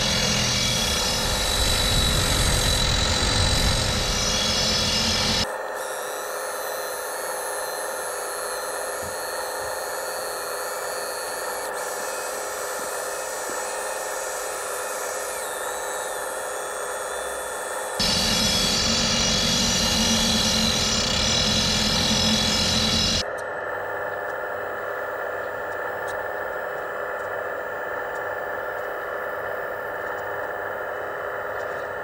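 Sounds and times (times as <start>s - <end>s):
drill bit boring into rock: 0.0s - 23.2s
electric motor whine: 0.0s - 32.0s.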